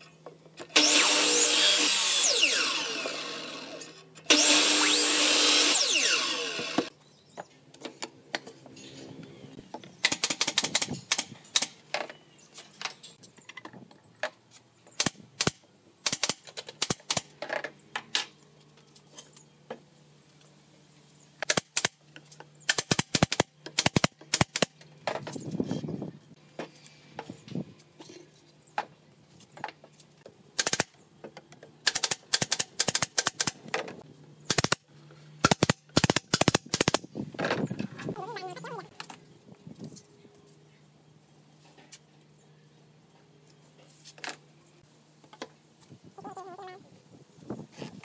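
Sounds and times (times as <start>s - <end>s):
miter saw cutting board: 0.7s - 6.9s
nail gun clacks: 10.0s - 11.8s, 15.0s - 17.4s, 21.4s - 22.0s, 22.7s - 24.8s, 30.6s - 31.0s, 31.8s - 33.9s, 34.5s - 34.8s, 35.4s - 37.1s.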